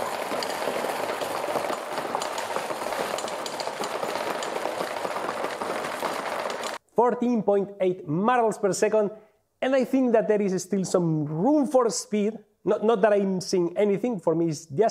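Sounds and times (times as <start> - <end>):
marbles clattering into plastic bins: 0.0 - 6.8.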